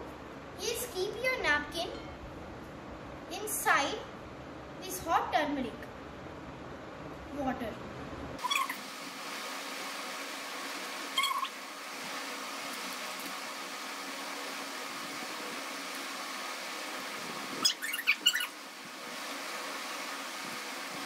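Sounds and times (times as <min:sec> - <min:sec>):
high cat-like animal calls: 0:08.4 - 0:08.8, 0:11.1 - 0:11.6, 0:17.6 - 0:18.6.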